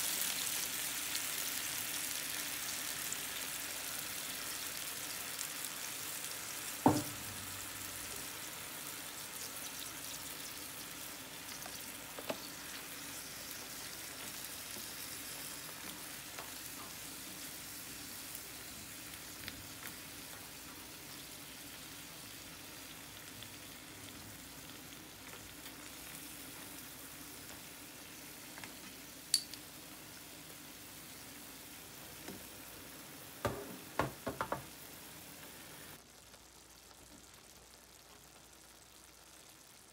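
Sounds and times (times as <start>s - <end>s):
broth sizzling in a frying pan: 0.0s - 39.9s
sharp knock: 6.9s - 7.2s.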